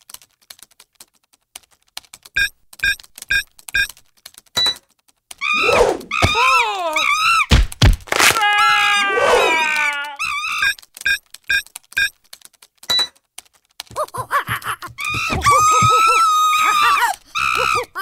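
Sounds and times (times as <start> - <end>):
keyboards clicking: 0.0 - 5.5, 9.6 - 18.0
monkey shrieks: 5.4 - 7.5, 8.4 - 10.7, 15.0 - 18.0.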